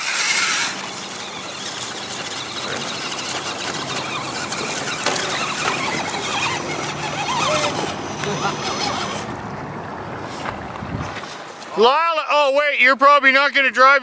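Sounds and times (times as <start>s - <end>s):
electric motor and gears whirring: 0.0s - 9.4s
water splashing and rushing: 0.0s - 12.0s.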